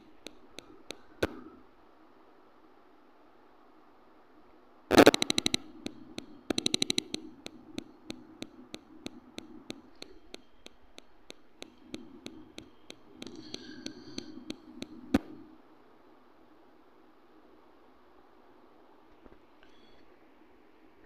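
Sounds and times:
sharp ticking clicks: 0.0s - 1.5s, 4.9s - 15.6s.

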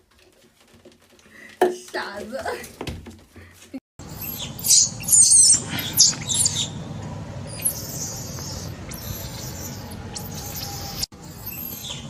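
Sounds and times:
monkey squealing: 4.1s - 6.8s, 7.5s - 12.0s.

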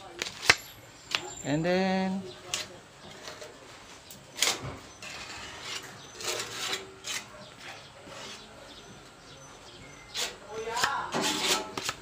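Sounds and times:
spreader scraping filler on metal: 4.4s - 8.6s, 10.1s - 12.0s.

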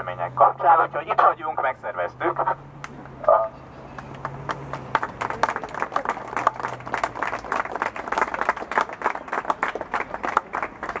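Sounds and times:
people applauding: 3.9s - 11.0s.

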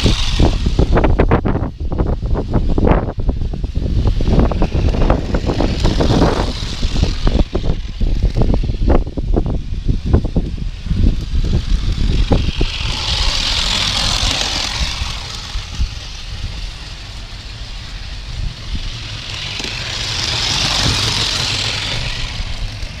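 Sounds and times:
steam engine hissing: 0.0s - 1.2s, 3.3s - 9.0s, 9.6s - 23.0s
low rumble: 0.0s - 23.0s.

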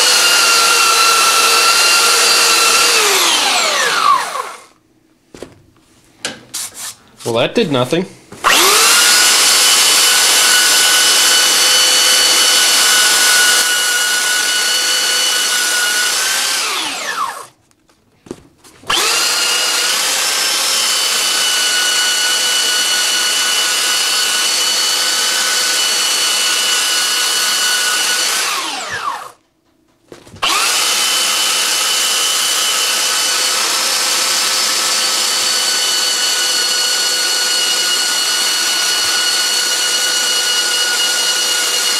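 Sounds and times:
electric belt sander grinding: 0.0s - 4.7s, 8.4s - 17.5s, 18.9s - 29.4s, 30.4s - 41.9s
sander winding down whine: 0.0s - 4.7s, 8.4s - 17.5s, 18.9s - 29.4s, 30.4s - 41.9s.

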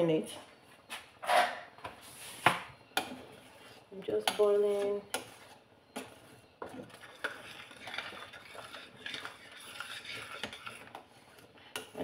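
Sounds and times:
spoon scraping and stirring: 3.0s - 12.0s.

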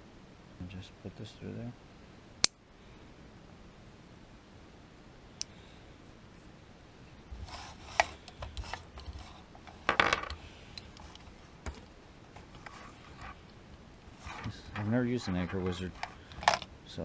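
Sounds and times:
carabiner clattering on wood: 14.2s - 16.7s
clicks and rattles of gear: 14.2s - 16.7s.

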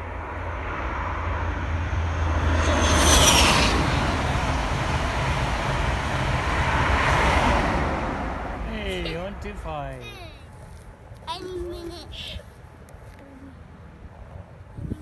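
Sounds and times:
train passing at speed: 0.0s - 10.3s.

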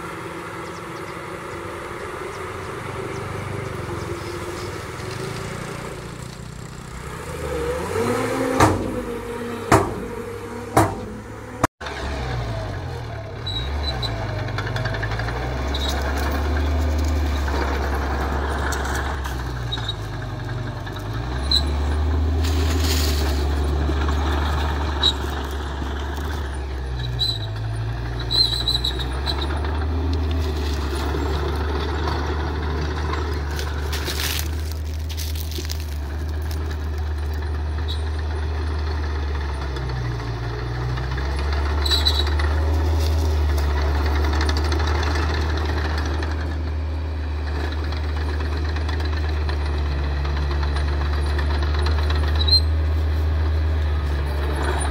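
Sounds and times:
bulldozer engine drone: 0.0s - 54.9s
diesel truck engine running: 0.0s - 54.9s
sharp knocks: 8.5s - 11.7s.

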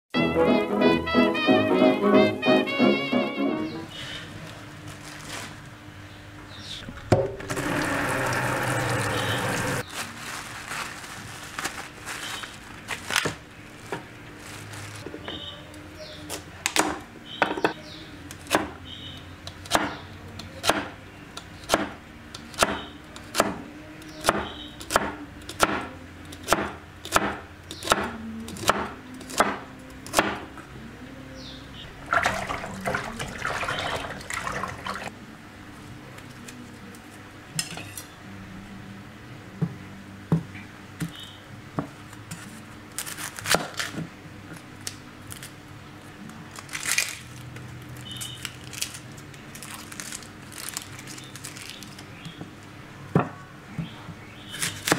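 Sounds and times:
scraping and rustling: 4.4s - 5.8s, 8.9s - 15.4s.

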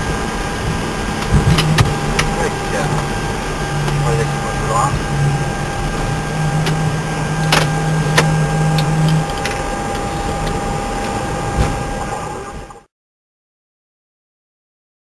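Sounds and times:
faint whining tones: 0.0s - 12.9s
low hum: 0.0s - 12.9s
steady rushing roar: 0.0s - 12.9s
switches clicking: 7.4s - 11.2s.

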